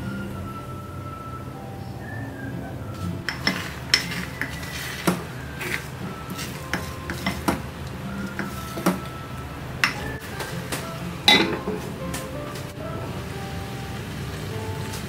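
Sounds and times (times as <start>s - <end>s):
wooden spoon scraping a pot: 3.2s - 7.6s, 8.2s - 9.1s
spoon knocking against pot: 11.3s - 11.9s.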